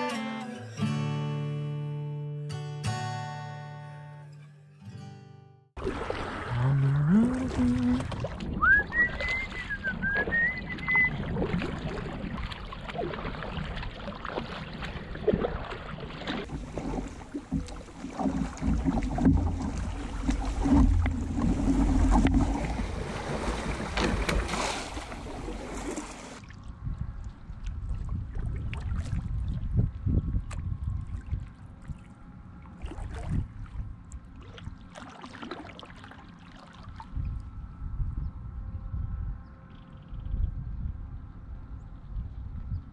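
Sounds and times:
kayak paddle strokes: 5.8 - 26.4
water splashing and rippling: 5.8 - 37.6
short whistle: 8.6 - 11.2.

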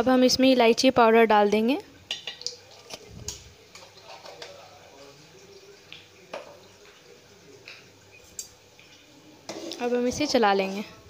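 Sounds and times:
syrup bubbling in a pot: 2.0 - 11.0.

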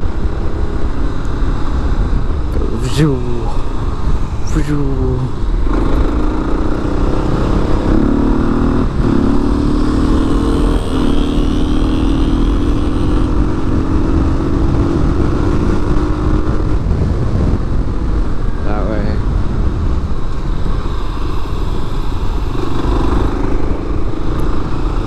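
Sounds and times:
motorcycle engine running: 5.4 - 25.0.

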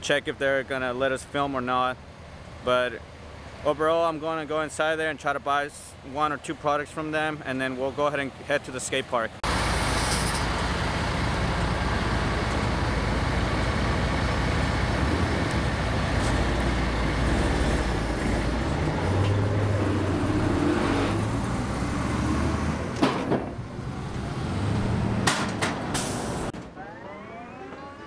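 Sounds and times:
road traffic noise: 0.0 - 28.0
heavy vehicle engine rumbling: 9.3 - 28.0
rising engine tone: 9.4 - 25.3, 26.1 - 28.0.

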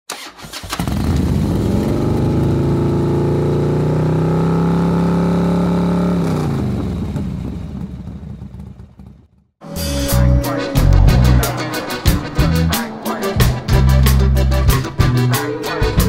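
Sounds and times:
motorcycle engine: 0.2 - 15.4.

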